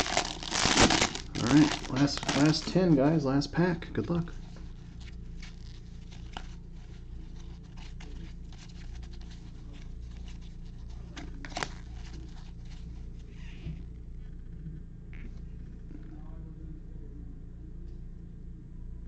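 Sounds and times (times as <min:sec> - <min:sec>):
cards rustling and sliding: 0:00.0 - 0:03.1, 0:04.5 - 0:12.8
steady low hum: 0:00.0 - 0:19.0.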